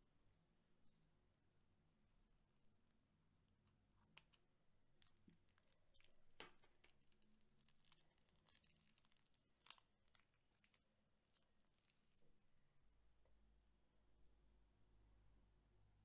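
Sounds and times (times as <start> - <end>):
slime clicks and crackles: 5.0 - 12.2.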